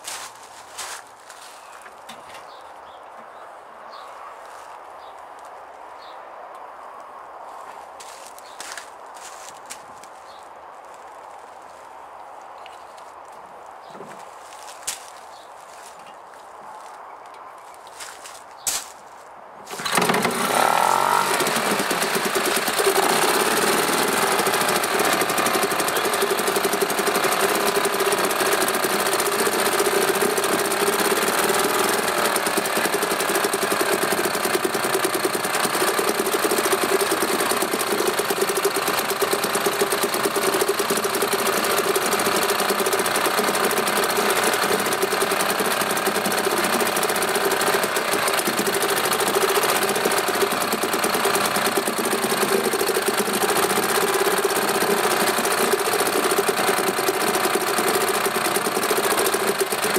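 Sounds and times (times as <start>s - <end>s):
two-stroke outboard motor running: 19.7s - 59.9s.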